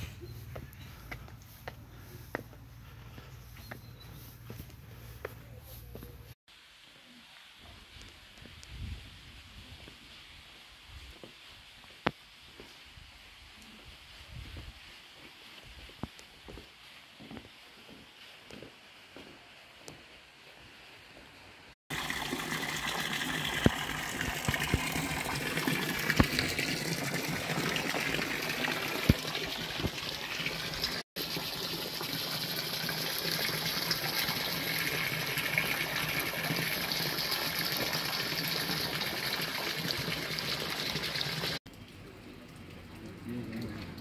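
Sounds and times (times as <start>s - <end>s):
running water rushing: 21.9s - 42.7s.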